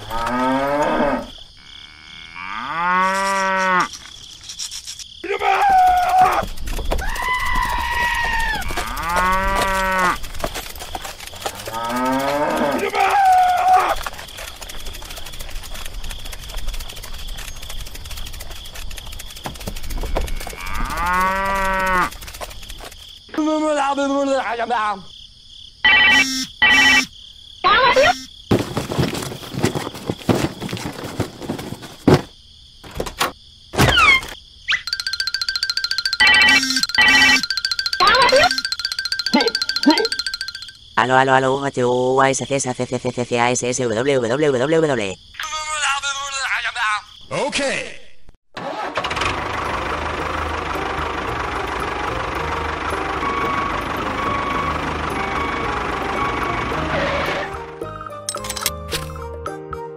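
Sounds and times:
cows mooing: 0:00.0 - 0:03.9, 0:08.2 - 0:10.2, 0:11.4 - 0:14.0, 0:20.4 - 0:22.2
scuffling and rustling: 0:06.1 - 0:23.2, 0:28.5 - 0:33.2.

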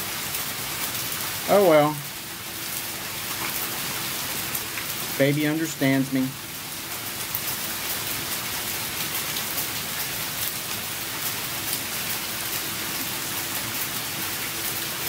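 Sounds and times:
steady rain falling: 0:00.0 - 0:15.0
raindrops ticking: 0:00.2 - 0:15.0.

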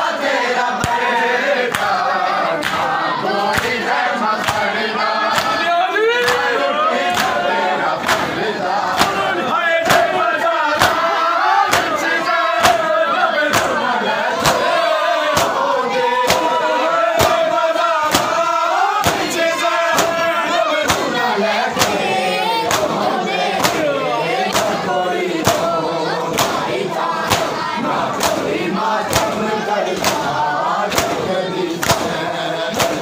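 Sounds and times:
crowd of men chanting: 0:00.0 - 0:33.0
hands slapping chests in unison: 0:00.2 - 0:33.0.

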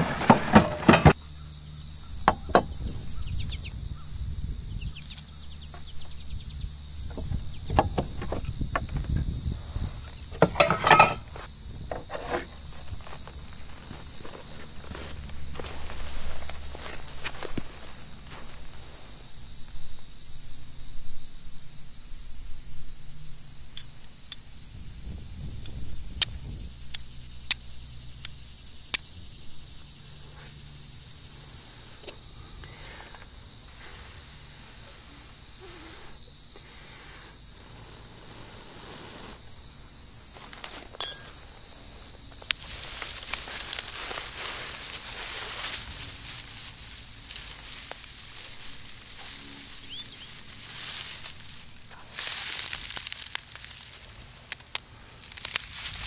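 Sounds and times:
dry grass rustling and crackling: 0:05.0 - 0:20.4, 0:30.8 - 0:56.0.

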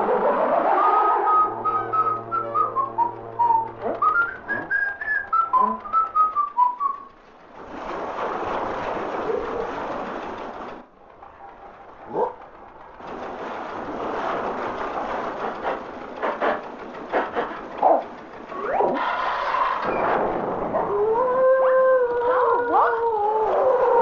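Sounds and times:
steady rushing noise: 0:00.0 - 0:21.0
low steady hum: 0:00.0 - 0:24.0
person whistling a tune: 0:01.3 - 0:07.1.

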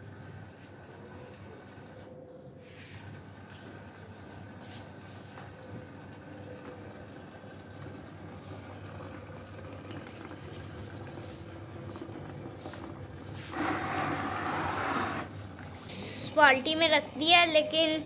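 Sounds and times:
aquarium air pump buzzing: 0:06.8 - 0:16.5.

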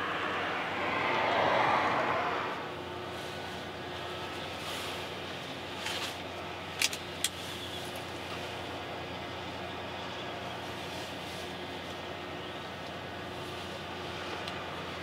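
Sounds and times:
passing noise: 0:00.0 - 0:03.7
industrial machinery hum: 0:00.0 - 0:15.0.

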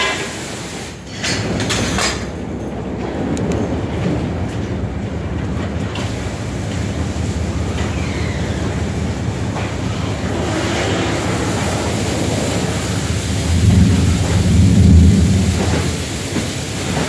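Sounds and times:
water spray hiss: 0:00.0 - 0:01.1, 0:06.0 - 0:17.0
car wash machinery rumble: 0:00.0 - 0:17.0.

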